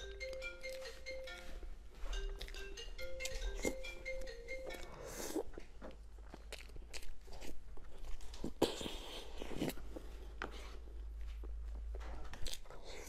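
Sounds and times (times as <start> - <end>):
close-up chewing and mouth smacks: 2.3 - 3.8, 4.6 - 13.0.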